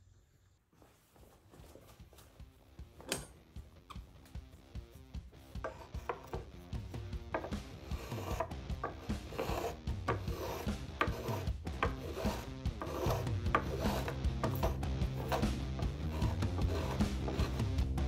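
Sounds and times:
spokeshave scraping wood: 5.3 - 17.8.

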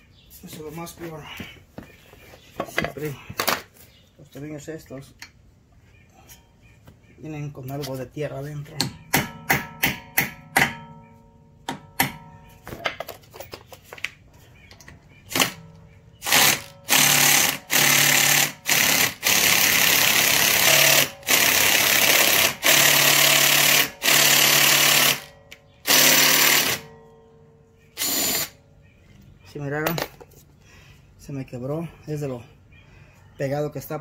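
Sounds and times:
impact wrench hammering: 8.8 - 11.0, 11.6 - 12.3, 16.2 - 25.3, 25.9 - 26.9
sharp metal knocks: 8.8 - 13.1.

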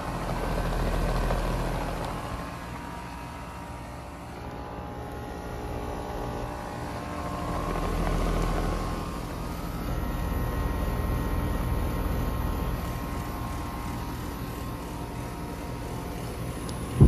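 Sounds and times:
air conditioner units droning: 0.0 - 17.0.

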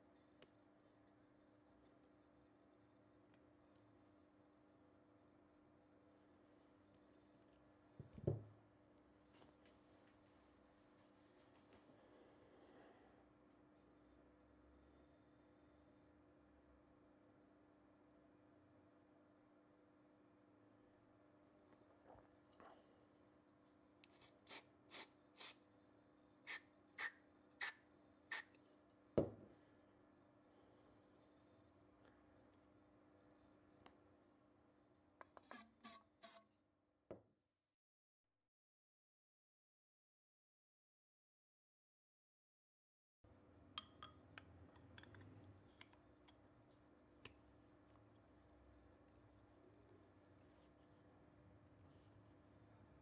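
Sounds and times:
quiet room hum: 0.0 - 37.8, 43.3 - 53.0
aerosol spray puffs: 24.1 - 25.6.

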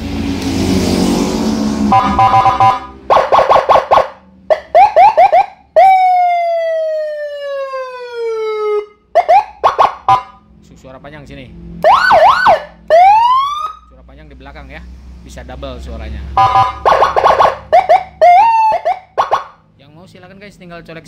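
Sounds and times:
siren long falling tone: 0.0 - 10.4, 11.8 - 13.9
siren hissing burst: 1.3 - 4.1
siren chirps and yelps: 1.9 - 10.4, 11.8 - 13.9, 16.4 - 19.6.

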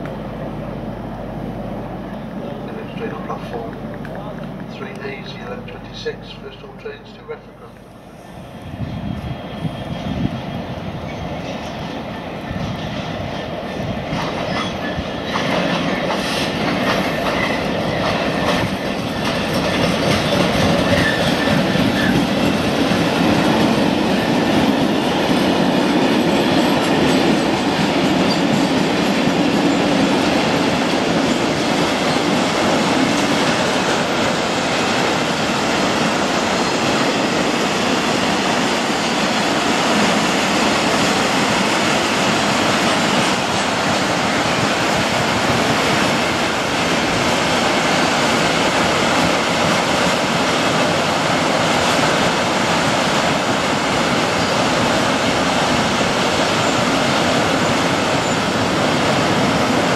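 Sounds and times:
diesel locomotive passing: 0.0 - 59.9
wheels clacking over rail joints: 14.1 - 37.6.

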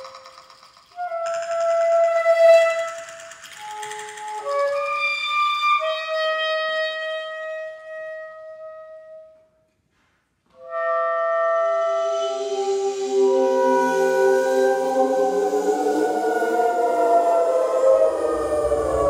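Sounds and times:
soprano saxophone long notes: 10.6 - 19.0
live electronics: 11.3 - 19.0.

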